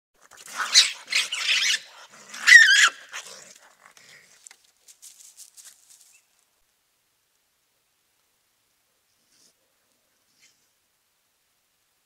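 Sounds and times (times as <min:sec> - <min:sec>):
raccoons screeching: 0:00.5 - 0:03.2.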